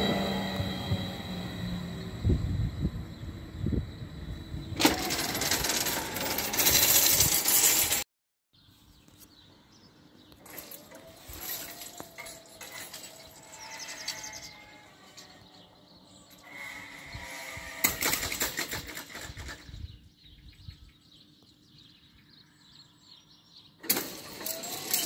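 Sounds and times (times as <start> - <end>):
electric train rushing past: 0.0 - 6.9.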